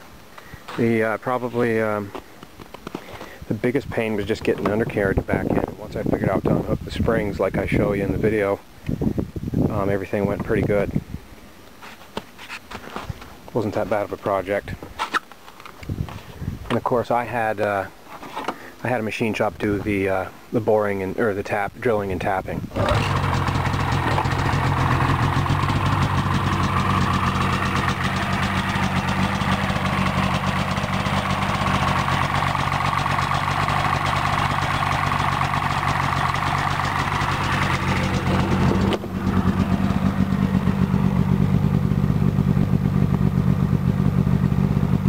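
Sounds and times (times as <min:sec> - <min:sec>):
snowmobile engine idling: 0:22.8 - 0:45.0.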